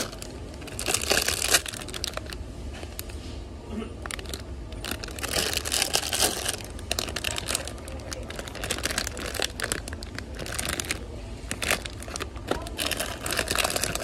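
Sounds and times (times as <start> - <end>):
plastic bags crinkling: 0.0 - 3.2, 3.9 - 14.0
low steady hum: 0.0 - 14.0.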